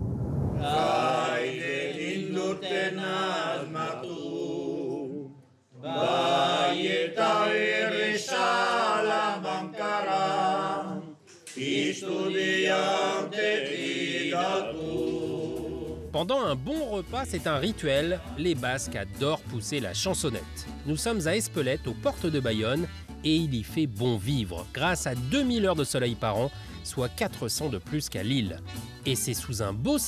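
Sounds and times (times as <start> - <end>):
men singing a cappella: 0.6 - 16.1.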